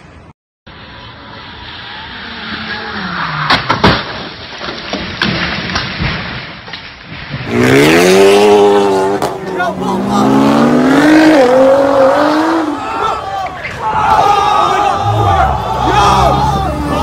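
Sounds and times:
car crash impacts: 0:03.3 - 0:07.7
debris clattering: 0:03.5 - 0:07.6
car engine revving: 0:07.4 - 0:12.9.

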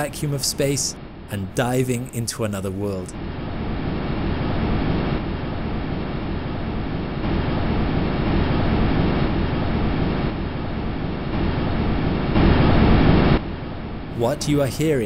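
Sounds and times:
rushing noise with deep rumble: 0:03.2 - 0:15.0.

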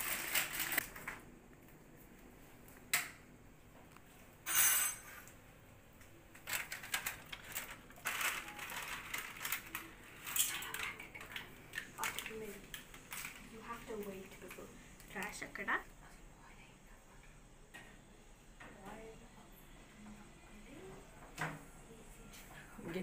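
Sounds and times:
pans and utensils clattering: 0:10.2 - 0:11.5.

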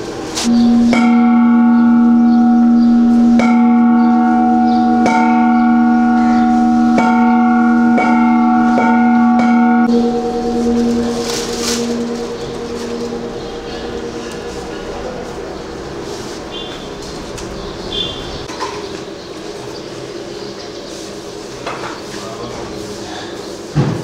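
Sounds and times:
low ringing tone: 0:00.4 - 0:17.0
metal bells struck: 0:00.4 - 0:17.0.

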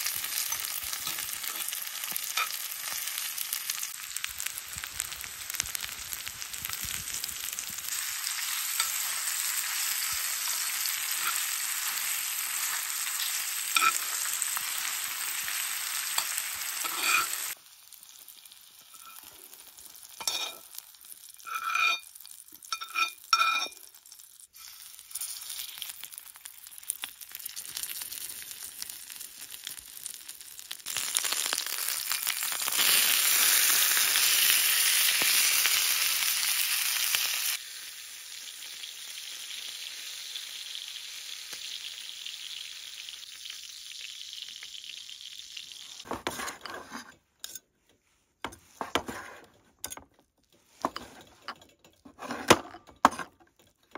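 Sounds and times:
meat sizzling in pan: 0:00.0 - 0:46.2
onions sizzling: 0:00.0 - 0:46.7
metal utensil clinking on pan: 0:00.4 - 0:02.7, 0:12.6 - 0:14.2, 0:16.1 - 0:17.4, 0:20.2 - 0:20.7, 0:21.5 - 0:23.9.

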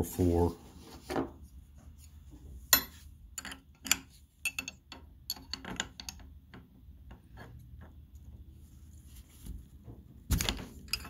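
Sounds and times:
wrench clicks and metal knocks: 0:02.8 - 0:06.7.

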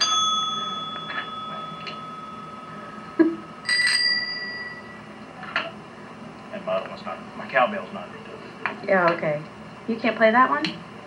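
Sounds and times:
desk service bell ringing: 0:00.0 - 0:05.2
higher-pitched bell ringing: 0:00.0 - 0:05.2.

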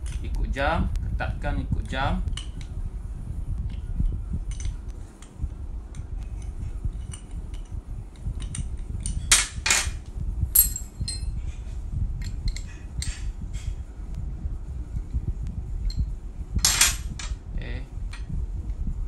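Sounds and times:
metal clinks: 0:08.4 - 0:11.3, 0:16.6 - 0:17.4.

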